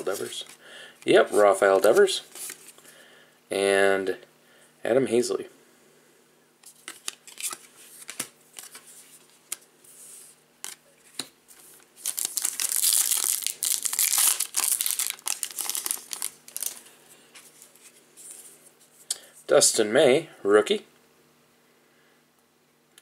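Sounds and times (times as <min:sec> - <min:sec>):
foil wrapper crinkling and tearing: 0:12.0 - 0:16.9.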